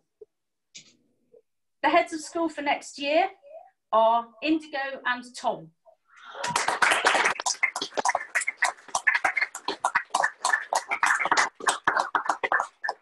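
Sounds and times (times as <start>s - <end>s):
people clapping: 6.2s - 13.0s.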